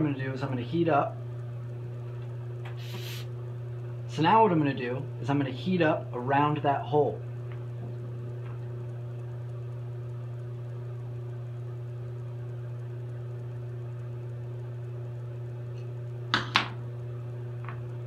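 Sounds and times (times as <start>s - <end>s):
torch humming: 2.4s - 3.5s.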